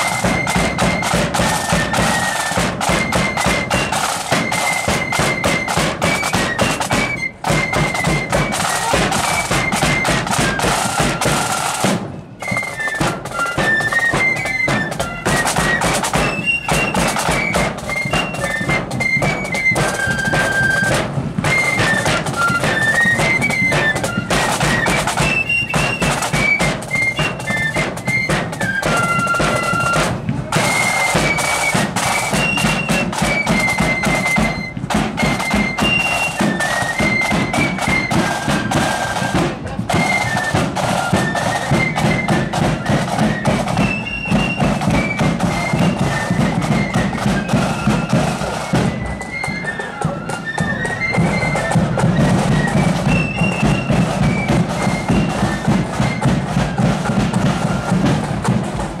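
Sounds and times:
flutes playing melody: 0.0s - 59.0s
bass drum and side drums: 50.0s - 59.0s.

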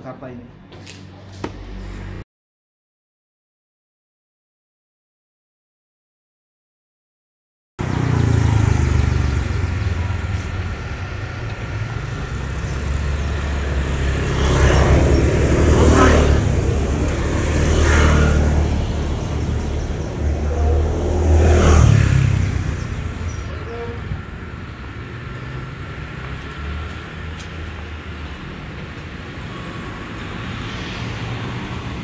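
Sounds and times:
vehicles passing: 0.0s - 2.2s, 7.8s - 32.0s
traffic rumble: 7.8s - 32.0s.

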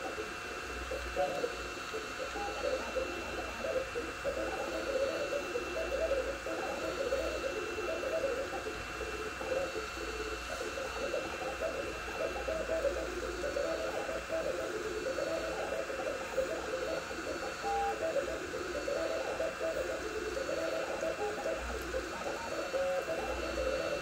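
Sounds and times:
stepper motors singing: 0.0s - 24.0s.

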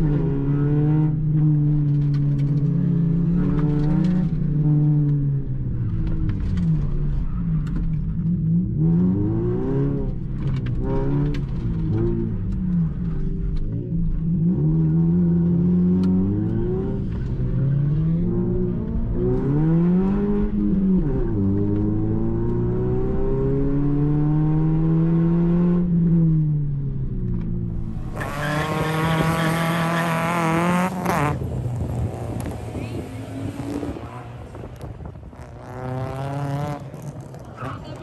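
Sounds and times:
car engine accelerating: 0.0s - 38.0s
harsh car sound outside: 0.0s - 38.0s.

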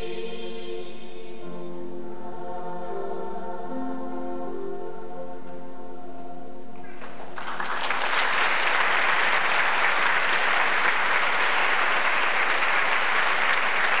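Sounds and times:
children's choir singing: 0.0s - 6.0s
audience applause: 6.8s - 14.0s.

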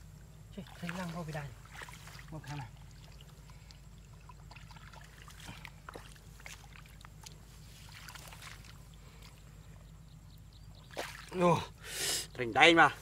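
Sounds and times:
steady low hum: 0.0s - 13.0s
hands splashing in muddy water: 0.6s - 9.4s, 10.9s - 11.4s.

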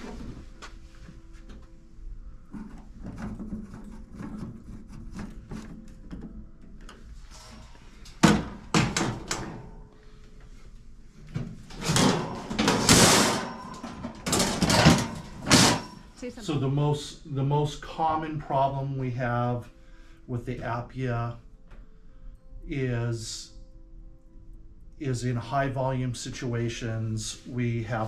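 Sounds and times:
metal clank: 11.7s - 16.2s.

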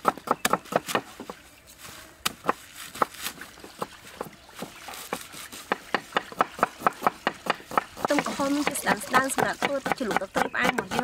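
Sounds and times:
cleaver chopping on wooden block: 0.0s - 1.1s, 5.7s - 11.0s.

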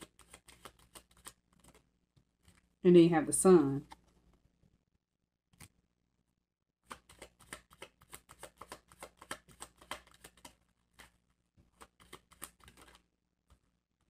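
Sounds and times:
cards being shuffled: 0.0s - 2.8s, 3.8s - 4.5s, 6.8s - 13.6s.

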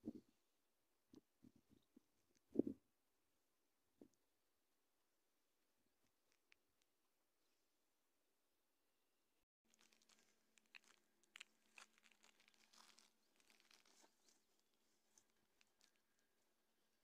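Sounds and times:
faint crackles and crunching clicks: 1.1s - 2.8s, 6.0s - 7.0s, 9.6s - 17.0s.

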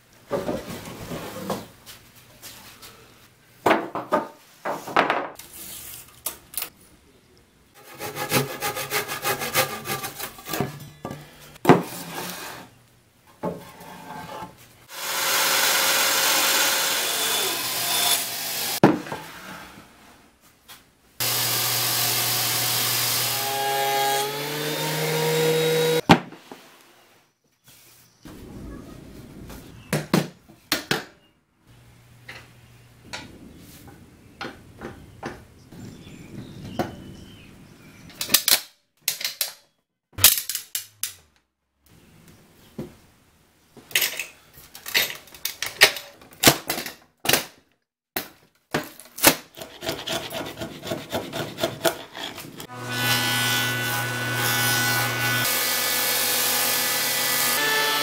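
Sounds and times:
chisel scraping glue: 49.6s - 52.6s.

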